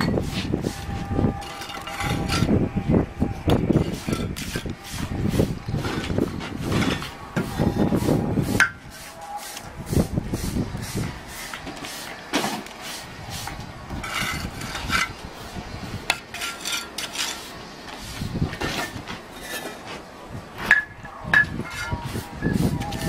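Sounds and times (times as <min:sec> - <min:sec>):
trowel tapping and scraping bricks: 0:01.4 - 0:02.5, 0:03.5 - 0:05.1, 0:16.0 - 0:20.0.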